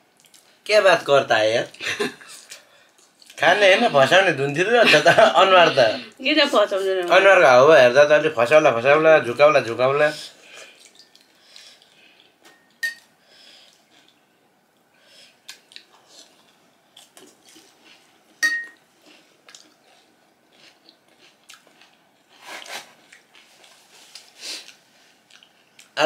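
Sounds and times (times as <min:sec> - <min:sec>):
spoon clinking porcelain bowl: 0:12.5 - 0:13.1, 0:18.4 - 0:18.8.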